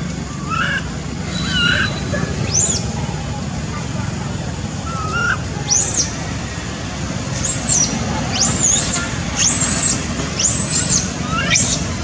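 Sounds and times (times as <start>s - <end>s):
infant monkey squealing: 0.4s - 2.8s, 4.8s - 6.2s, 7.4s - 12.0s.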